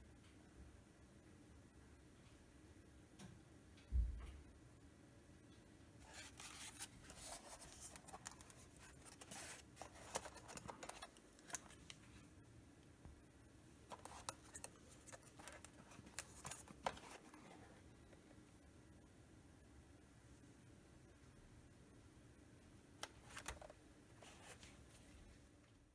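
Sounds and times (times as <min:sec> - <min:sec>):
plastic clicks and scraping: 0:06.0 - 0:12.2, 0:13.9 - 0:17.7, 0:23.0 - 0:24.7.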